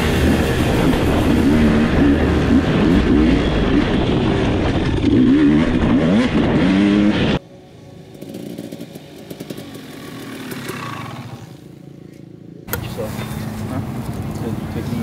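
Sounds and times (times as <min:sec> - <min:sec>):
dirt bike engine revving: 0:00.0 - 0:07.4
distant dirt bike passing: 0:08.0 - 0:11.9.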